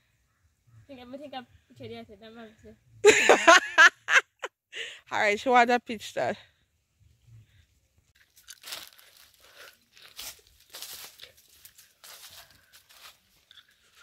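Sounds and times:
footsteps through dry leaves: 0:08.2 - 0:14.0.

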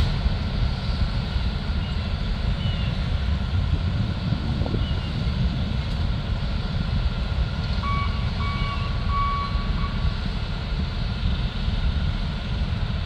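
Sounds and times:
low engine rumble: 0:00.0 - 0:13.0
vehicle backup alarm beeps: 0:07.8 - 0:10.2.

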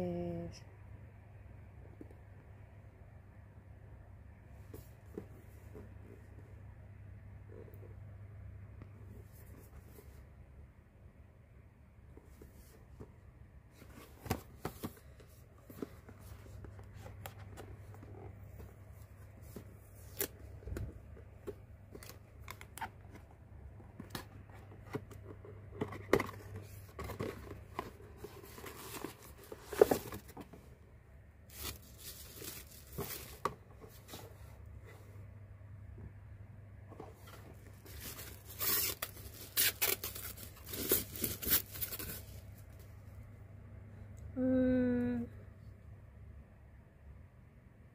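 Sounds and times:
plastic bag rustling: 0:31.5 - 0:34.2, 0:37.2 - 0:42.5.

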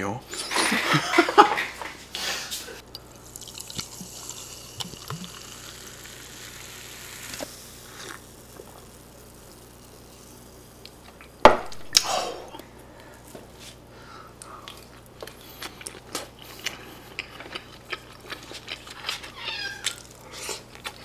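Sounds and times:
soda fizzing while poured: 0:03.0 - 0:10.8.

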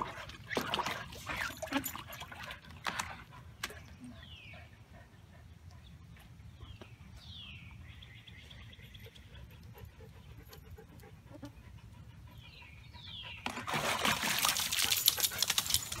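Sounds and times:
splashing and scraping on plastic: 0:00.0 - 0:03.9, 0:13.5 - 0:16.0.

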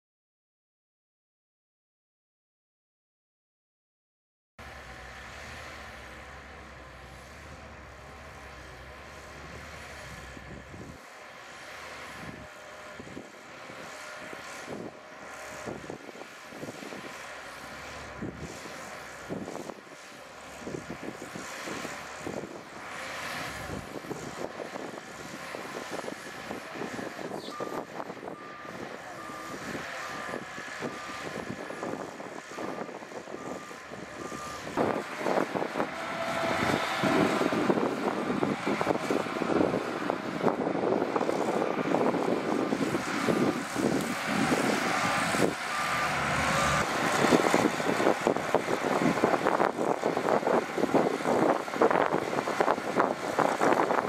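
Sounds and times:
bulldozer diesel engine: 0:04.6 - 0:54.0
reversing alarm beeping: 0:27.4 - 0:31.5.

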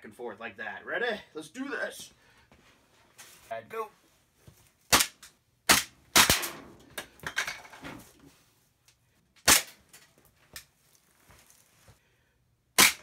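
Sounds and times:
airsoft pistol shots: 0:04.9 - 0:06.7, 0:09.4 - 0:09.8, 0:12.8 - 0:13.0
scuffling and clatter: 0:09.9 - 0:12.0.

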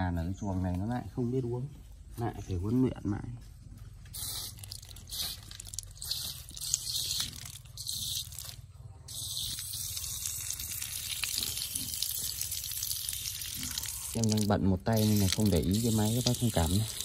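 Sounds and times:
water spraying from a valve: 0:04.1 - 0:17.0.

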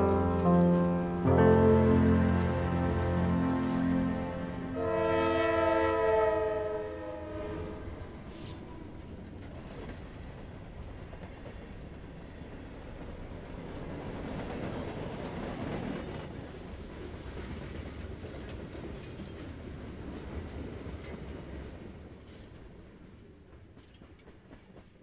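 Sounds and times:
train horn chord: 0:00.0 - 0:08.0
train rumbling past: 0:00.0 - 0:24.9.

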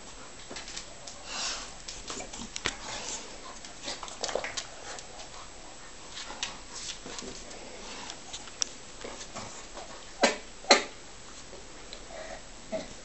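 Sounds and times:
dogs scuffling: 0:00.0 - 0:10.1.

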